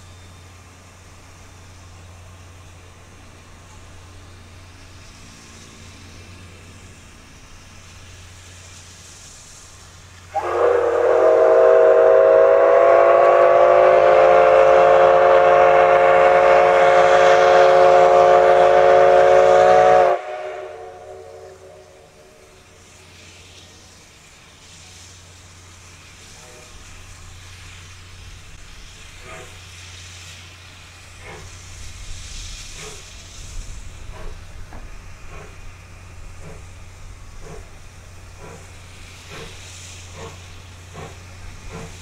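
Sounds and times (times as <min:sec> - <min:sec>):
steam whistle blast: 0:10.3 - 0:22.6.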